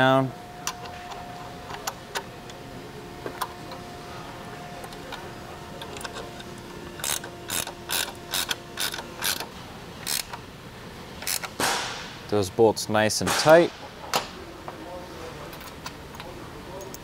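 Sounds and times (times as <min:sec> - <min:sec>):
wrench ratcheting clicks: 0:07.0 - 0:10.4, 0:11.2 - 0:11.5.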